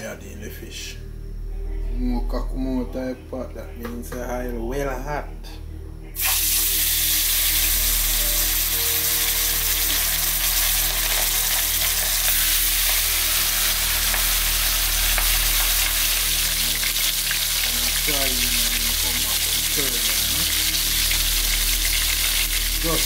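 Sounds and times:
fish sizzling in hot oil: 0:06.2 - 0:23.0.

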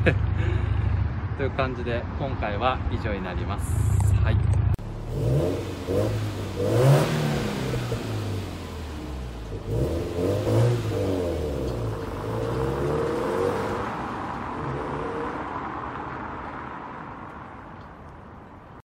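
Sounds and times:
car accelerating with gear changes: 0:04.4 - 0:15.8.

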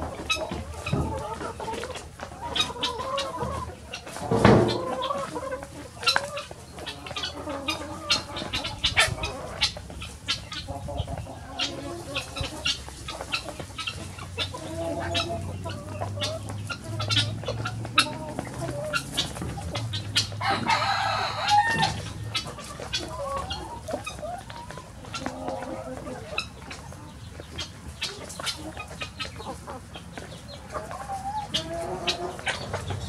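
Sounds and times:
hens clucking: 0:00.0 - 0:33.0.

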